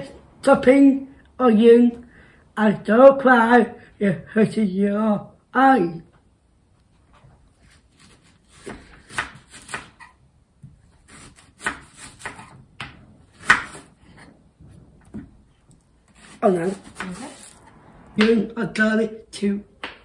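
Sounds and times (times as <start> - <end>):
knife chopping onion on board: 7.7 - 13.9, 16.1 - 17.6.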